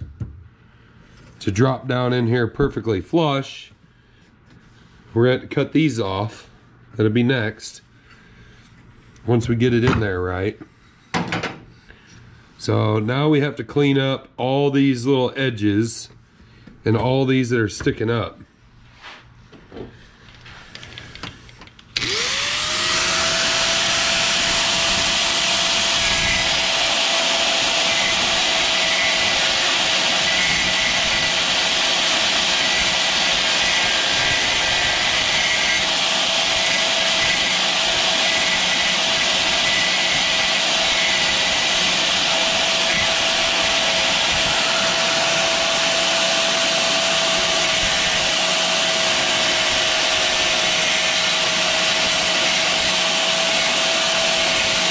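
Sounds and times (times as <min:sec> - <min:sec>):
angle grinder whining: 0:22.0 - 0:54.9.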